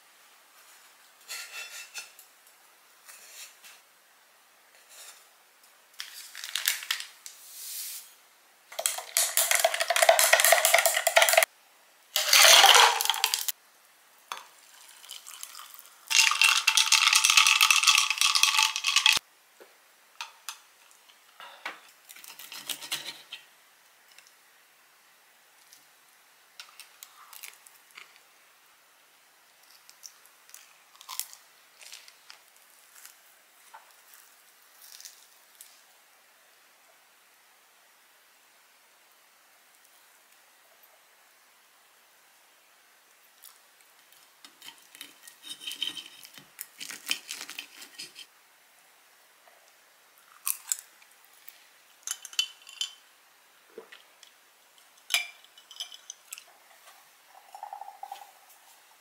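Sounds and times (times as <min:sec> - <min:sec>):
utensils and plates clinking: 0:08.8 - 0:11.5, 0:44.6 - 0:48.3, 0:55.0 - 0:56.5
spoon clinking in glass: 0:55.0 - 0:56.4, 0:57.4 - 0:58.3.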